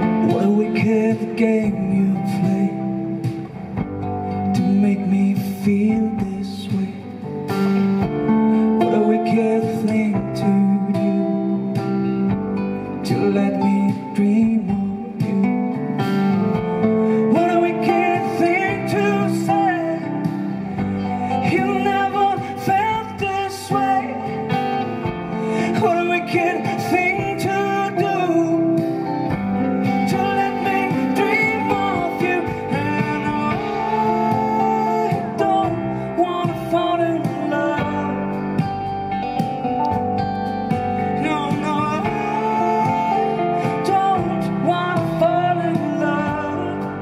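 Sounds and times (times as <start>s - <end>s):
man singing: 0.0s - 40.0s, 40.7s - 47.0s
strummed acoustic guitar: 0.0s - 47.0s
upright double bass: 0.0s - 47.0s.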